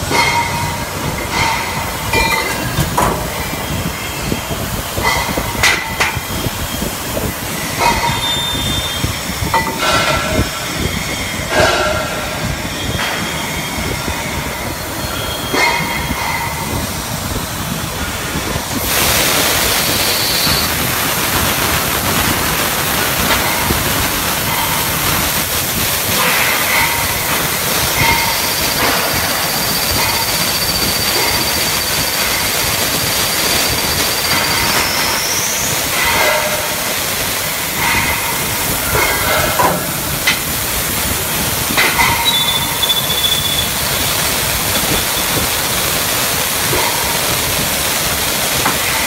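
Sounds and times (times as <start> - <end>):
metallic clanks: 0.0 - 4.4, 34.2 - 41.0
steady hiss: 0.0 - 49.0.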